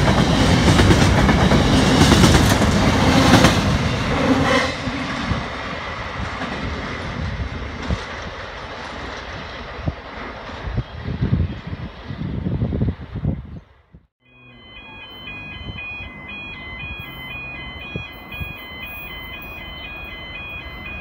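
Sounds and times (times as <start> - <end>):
freight train wagons rolling past: 0.0 - 11.4.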